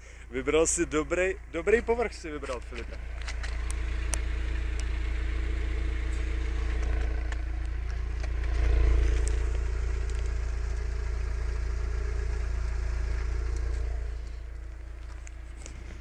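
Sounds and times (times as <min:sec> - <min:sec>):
car engine idling: 0:00.0 - 0:16.0.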